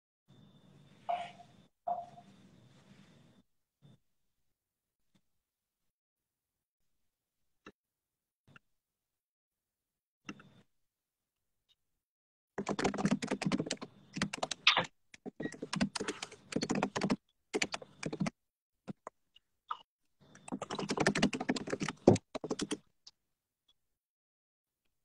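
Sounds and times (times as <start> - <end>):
computer keyboard typing: 12.6 - 18.4, 20.4 - 22.9.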